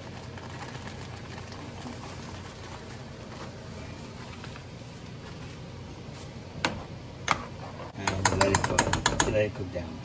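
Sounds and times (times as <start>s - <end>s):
sauce simmering in a saucepan: 0.0s - 3.9s.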